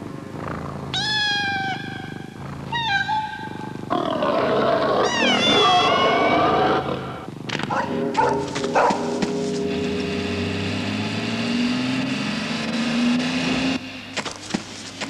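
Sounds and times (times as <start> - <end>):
cartoon cat meowing: 1.0 - 2.1, 2.7 - 3.7, 5.0 - 6.6
rough snarling with wavering cry: 3.9 - 9.6.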